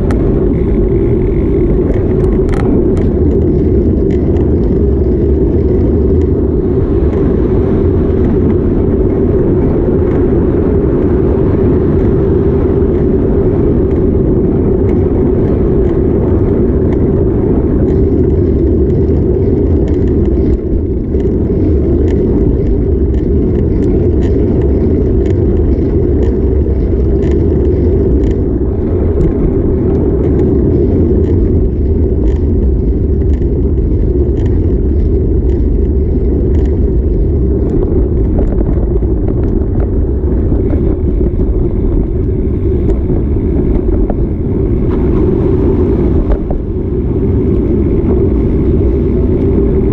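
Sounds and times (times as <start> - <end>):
small clicks and rattles: 0.0 - 7.3, 17.8 - 44.2
wind and road noise rumble: 0.0 - 49.9.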